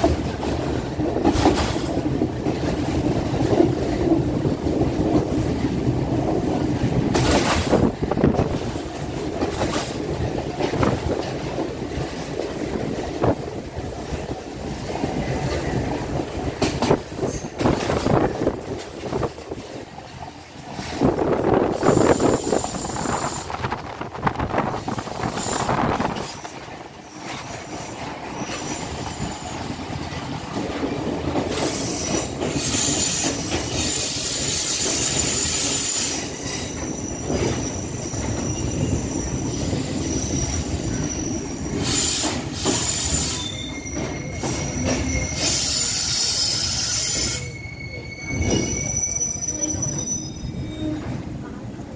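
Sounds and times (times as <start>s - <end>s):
train running on rails: 0.0s - 51.9s
high-pitched wheel squeal: 31.7s - 51.2s.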